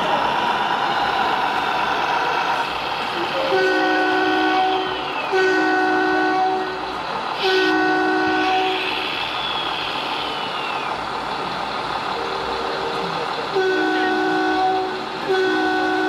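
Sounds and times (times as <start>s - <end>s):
toy truck horn blasts: 3.5s - 6.8s, 7.5s - 8.8s, 13.6s - 16.0s.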